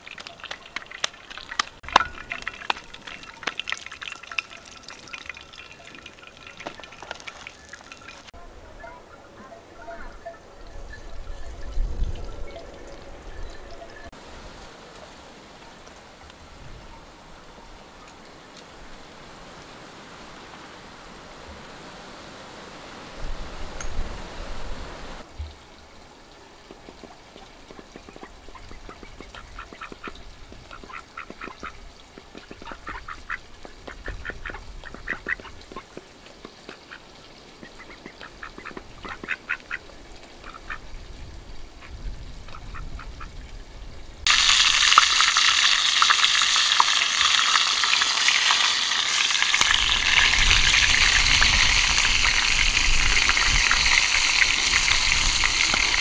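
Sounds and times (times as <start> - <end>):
frying in hot oil sizzle: 0.0 - 8.3, 44.2 - 56.0.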